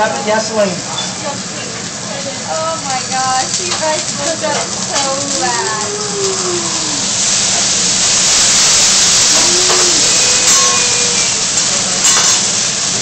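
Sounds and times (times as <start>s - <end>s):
liquid sizzling on hot griddle: 0.0s - 13.0s.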